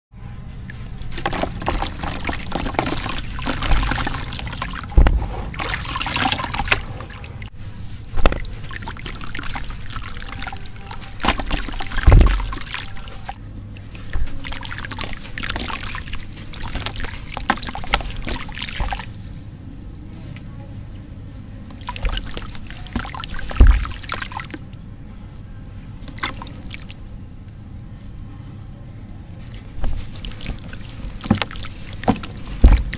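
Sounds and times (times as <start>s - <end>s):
water splashing: 1.0s - 7.5s, 8.1s - 19.2s, 21.7s - 24.7s, 26.0s - 27.1s, 29.8s - 32.9s
low plops in water: 11.2s - 12.8s.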